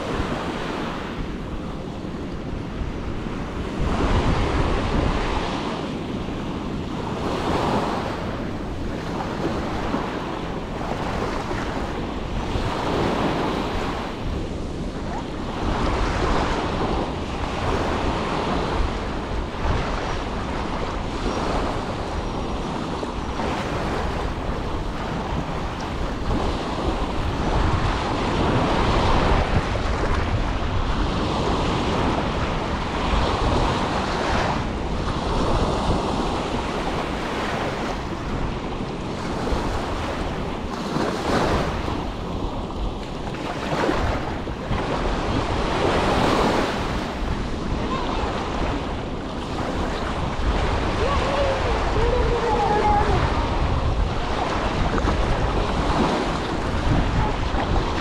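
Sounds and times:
small waves on a sandy beach: 0:00.0 - 0:58.0
wind rumbling on microphone: 0:00.0 - 0:58.0.

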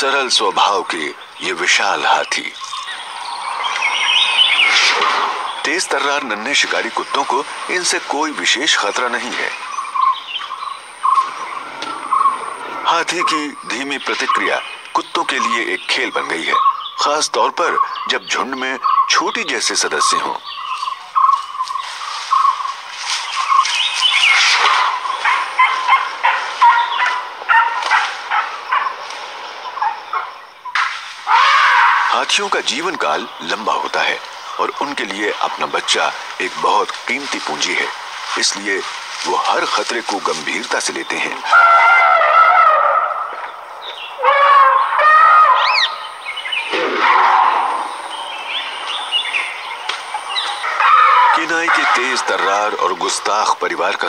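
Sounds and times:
high-pitched animal calls: 0:01.0 - 0:07.8, 0:08.9 - 0:15.6, 0:18.8 - 0:32.3, 0:41.1 - 0:53.2
wild dogs yelping whistles: 0:02.6 - 0:05.8, 0:23.5 - 0:29.0, 0:41.5 - 0:52.2.

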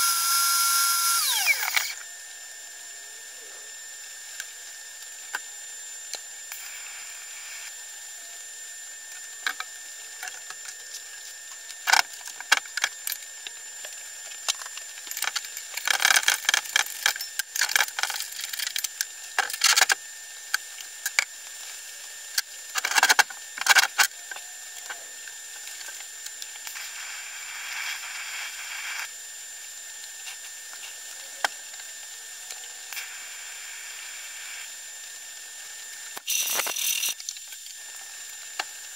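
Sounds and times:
faint high whine: 0:00.0 - 0:19.9.

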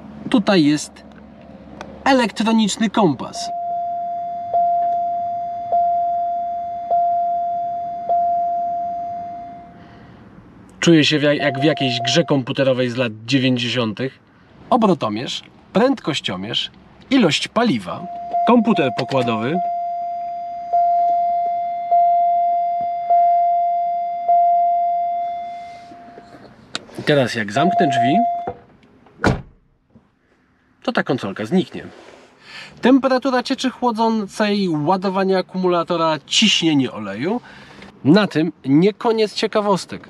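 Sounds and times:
dashboard warning chime: 0:03.3 - 0:09.8, 0:11.3 - 0:12.5, 0:17.7 - 0:26.4, 0:27.5 - 0:28.6.

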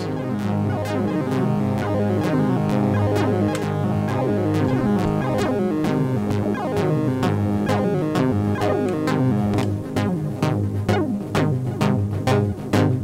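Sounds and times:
low synth bass line: 0:02.4 - 0:12.7.

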